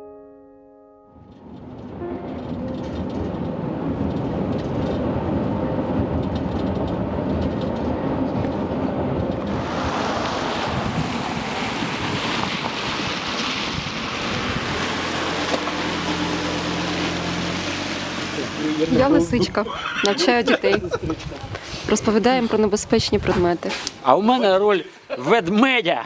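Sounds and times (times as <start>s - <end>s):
car road noise rumble: 1.2s - 23.7s
tyres hissing on wet tarmac: 9.4s - 19.3s, 21.4s - 22.5s, 23.4s - 24.1s.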